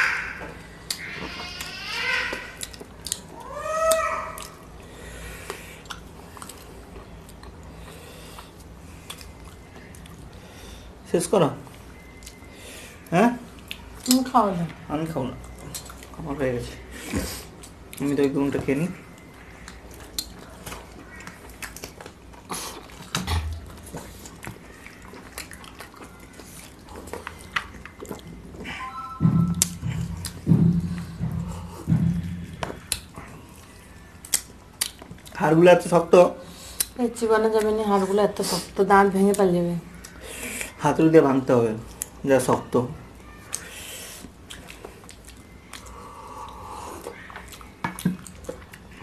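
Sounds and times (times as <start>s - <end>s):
people chewing: 0.4s - 11.0s, 15.4s - 40.8s, 41.8s - 49.0s
cat meowing: 3.4s - 4.6s
small eating clicks: 17.6s - 28.6s.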